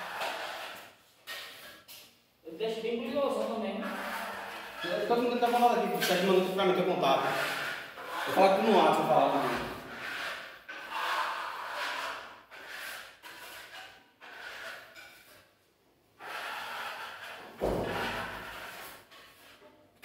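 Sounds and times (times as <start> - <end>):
trowels scraping on wall: 0.0 - 2.2, 3.1 - 15.6, 16.2 - 19.9
thump: 17.6 - 18.3.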